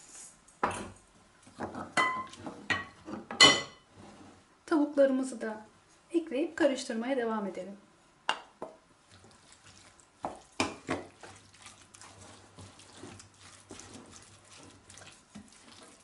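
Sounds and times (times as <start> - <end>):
wooden spoon stirring wet mixture: 0.7 - 4.4, 8.5 - 16.0.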